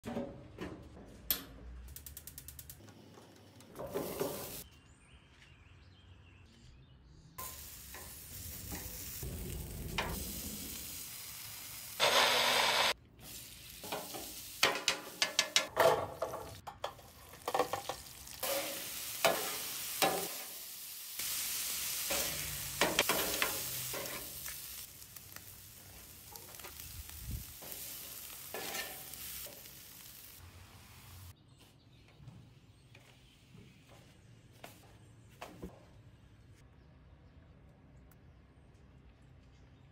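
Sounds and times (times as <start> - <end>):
loud hiss: 7.4 - 15.4, 18.4 - 25.9
meat sizzling on a griddle: 7.4 - 15.7, 17.1 - 31.3
metal spatula scraping and clacking: 28.5 - 29.2.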